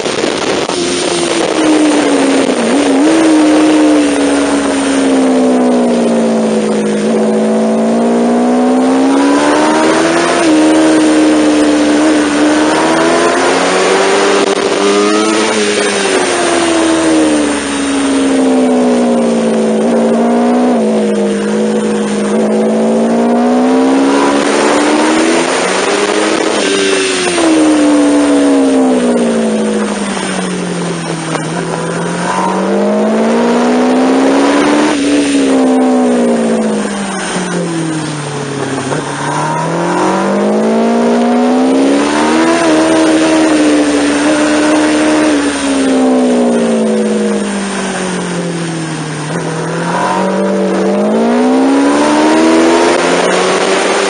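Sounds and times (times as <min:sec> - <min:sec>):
wind noise: 0:00.0 - 0:07.9
motorcycle engine accelerating: 0:00.0 - 0:54.0.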